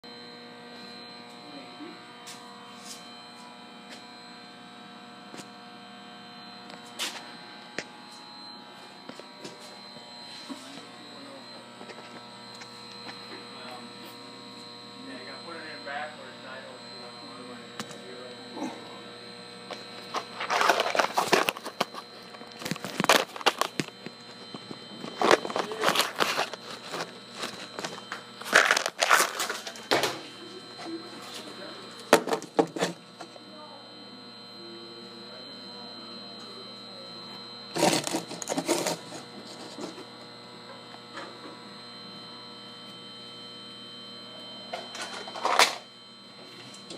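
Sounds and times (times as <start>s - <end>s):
multi-tone electrical hum: 0.0s - 46.9s
phone handling rustling and scraping: 19.7s - 30.0s, 37.8s - 40.1s.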